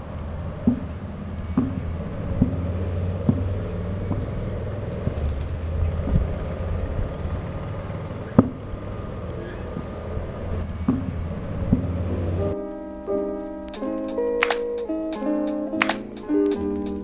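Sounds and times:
steady low rumble: 0.0s - 13.1s
sharp clicks: 13.7s - 17.0s.

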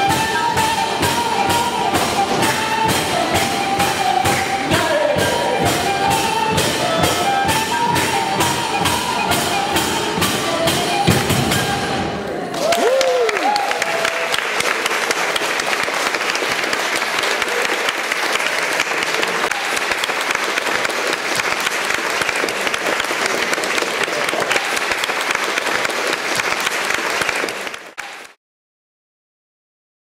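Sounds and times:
audience applauding: 12.3s - 28.4s.

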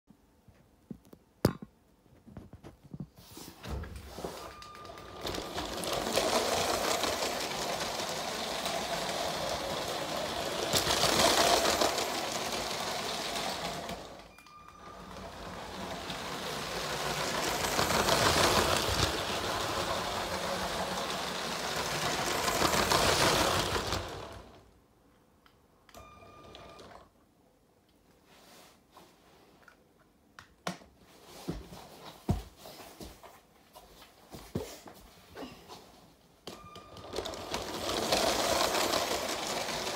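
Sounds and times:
wheels clattering over track joints: 4.0s - 24.6s, 36.8s - 39.9s
toy train motor whirring: 4.8s - 24.6s, 37.0s - 39.9s.

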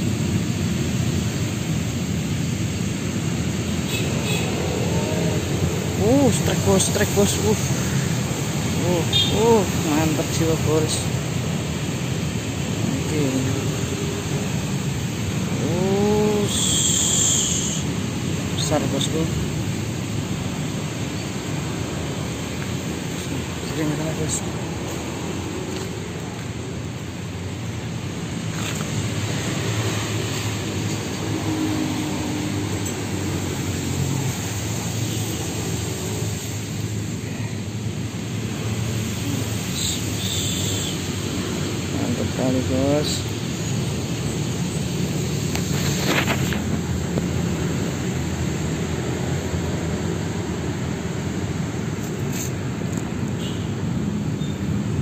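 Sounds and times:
low outdoor traffic rumble: 0.0s - 55.0s.

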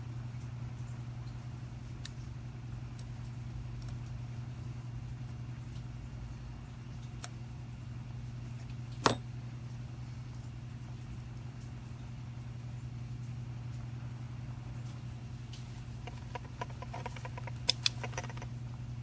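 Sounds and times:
steady low hum: 0.0s - 19.0s
small parts clicking: 16.0s - 18.5s.

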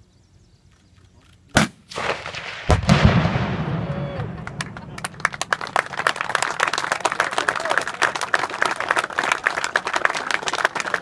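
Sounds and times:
people clapping: 3.9s - 11.0s.

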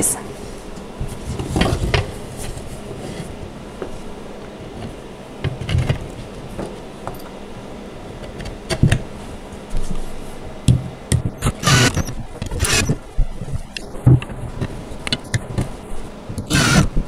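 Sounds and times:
cordless drill driving screw: 11.4s - 13.0s, 16.4s - 16.9s.

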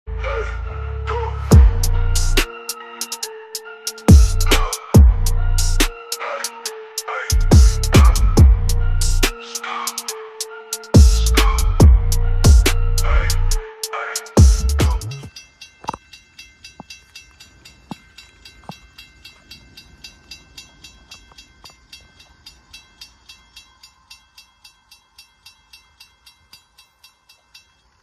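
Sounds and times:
crossing warning bell ringing: 15.3s - 28.0s.

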